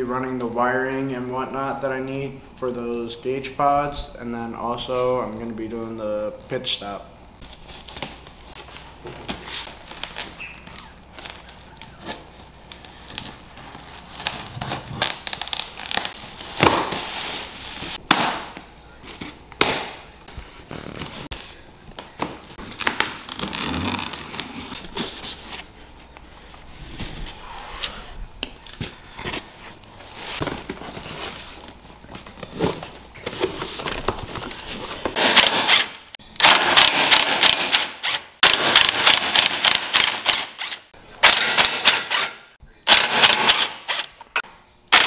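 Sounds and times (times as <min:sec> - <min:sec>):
cardboard and plastic wrap rustling: 0:07.4 - 0:18.0, 0:20.2 - 0:27.4, 0:28.6 - 0:35.2.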